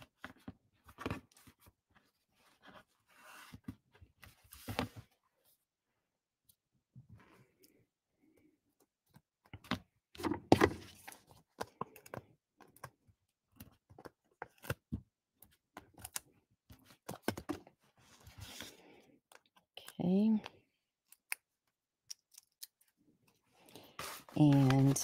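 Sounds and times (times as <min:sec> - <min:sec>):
paper rustling: 0:23.8 - 0:25.0.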